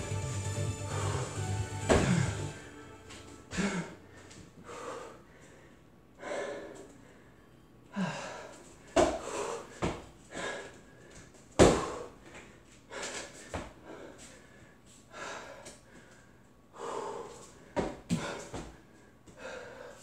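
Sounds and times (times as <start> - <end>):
man breathing hard: 0.7 - 2.7, 3.5 - 20.0
forceful exhalations: 0.8 - 2.7, 3.5 - 5.6.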